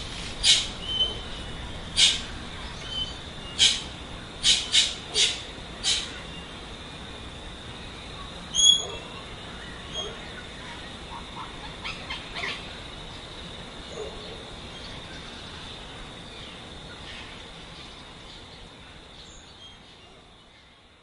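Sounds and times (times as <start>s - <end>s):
background hiss: 0.0s - 21.0s
bird chirps: 8.5s - 10.2s.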